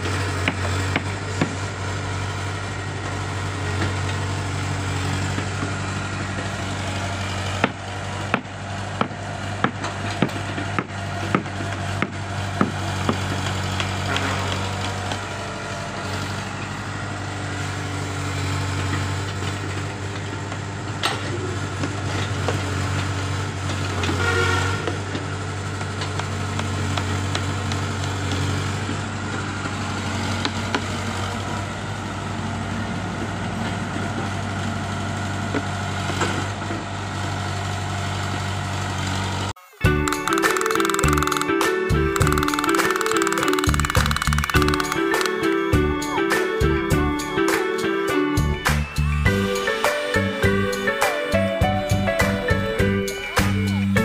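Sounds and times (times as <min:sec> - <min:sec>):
excavator diesel engine running: 0:00.0 - 0:54.0
knocks and clatters of digging: 0:42.2 - 0:45.7.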